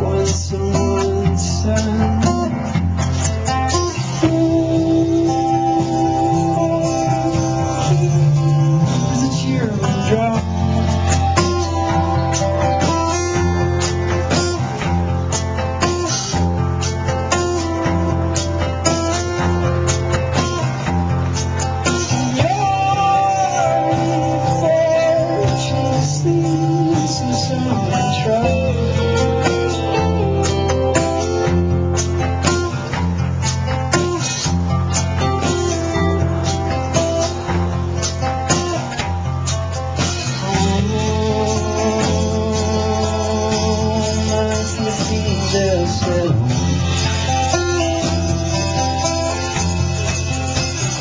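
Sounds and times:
drum kit with cymbals: 0.0s - 51.0s
electric and acoustic guitars: 0.0s - 51.0s
low bass line: 0.0s - 51.0s
sliding wavering lead melody: 3.3s - 51.0s.

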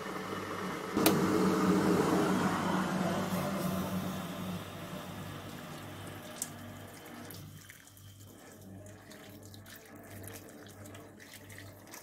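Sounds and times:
kettle water hissing: 0.0s - 10.0s
kettle click: 1.0s - 1.2s
water pouring into steel bowl: 5.5s - 12.0s.

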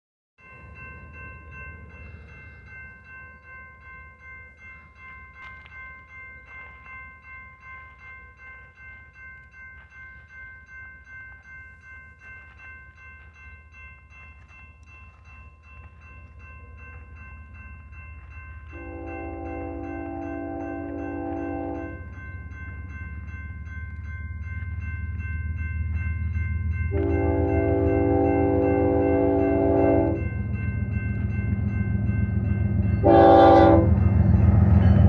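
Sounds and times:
crossing bell ringing: 0.4s - 35.0s.

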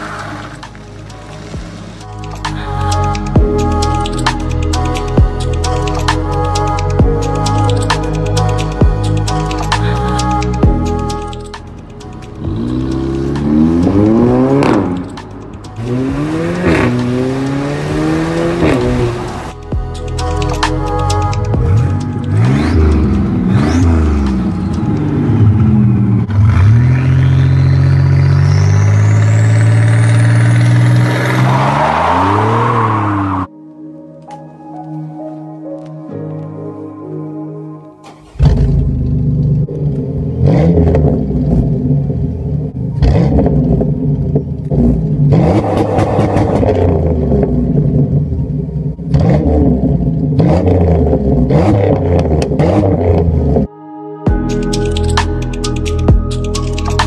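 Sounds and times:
car engine revving: 9.6s - 19.6s, 21.3s - 33.5s, 38.0s - 53.7s.

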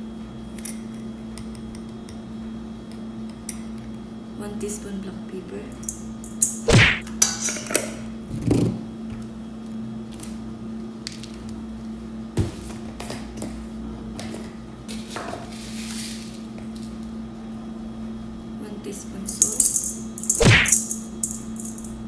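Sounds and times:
steady low hum: 0.0s - 7.3s, 13.5s - 22.0s.

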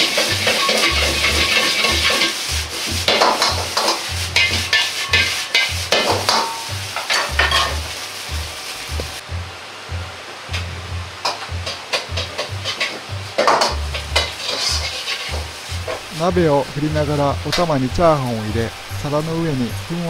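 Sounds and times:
metal ladle scraping a wok: 0.0s - 8.0s, 11.6s - 16.1s
sizzling in a hot pan: 0.0s - 9.2s, 11.2s - 16.9s.

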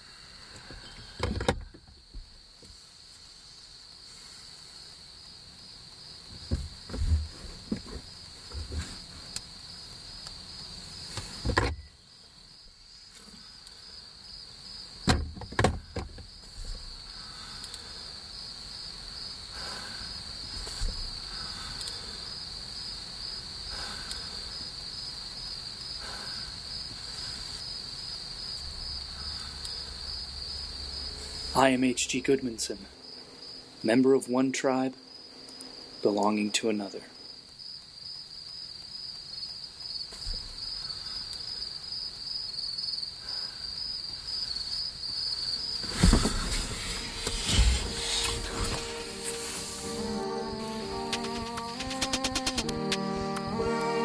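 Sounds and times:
crickets chirping: 0.0s - 54.0s
soft thumps: 6.3s - 9.0s
sharp clicks: 51.0s - 53.5s.

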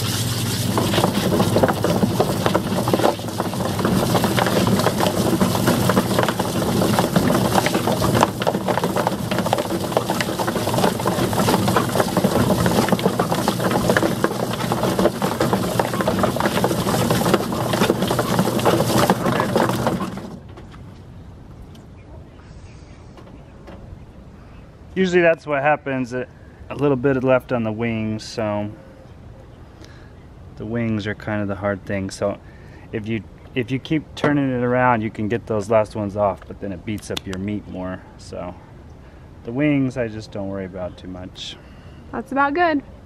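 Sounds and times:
hose spraying water: 0.0s - 20.4s
washer motor humming: 0.0s - 20.5s.

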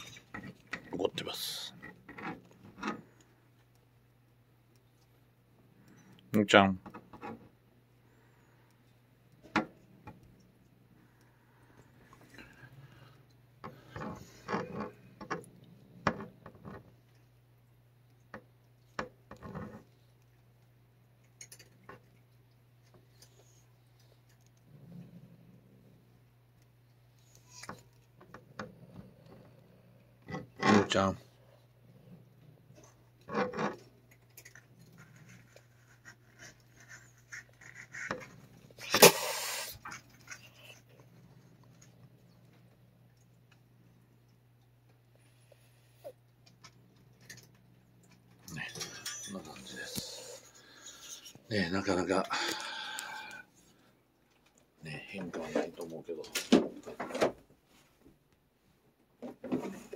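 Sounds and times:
cat growling: 24.5s - 26.1s
cat spitting hiss: 38.8s - 39.9s.

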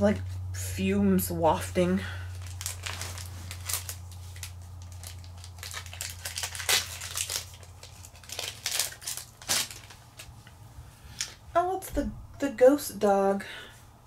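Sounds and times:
foil wrapper crinkling and tearing: 2.3s - 10.4s.

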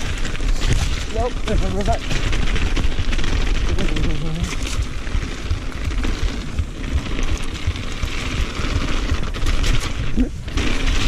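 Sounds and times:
bike rattling: 0.0s - 11.0s
tyres rumbling over stones: 0.0s - 11.0s.

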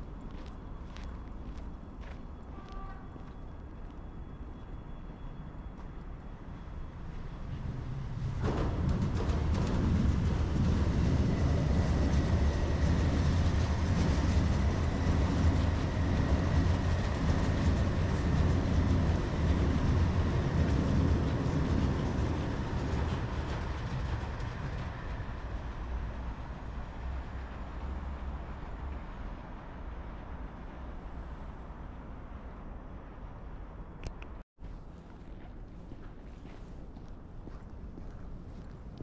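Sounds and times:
electric train rumbling past: 0.0s - 34.0s
wheels clattering on rails: 7.5s - 27.7s.

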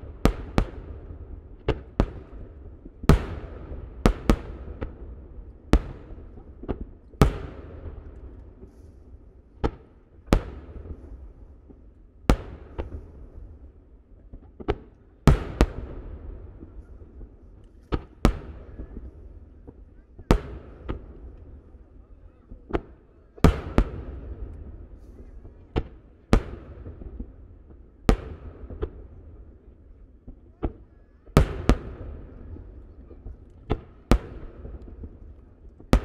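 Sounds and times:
fireworks bangs echoing: 22.5s - 27.3s, 30.3s - 36.0s.

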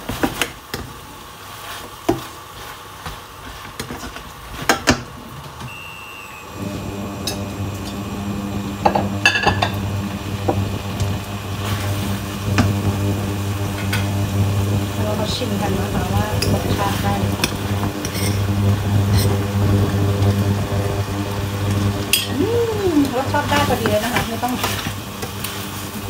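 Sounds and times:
metal spatula scraping frying pan: 16.8s - 18.4s.

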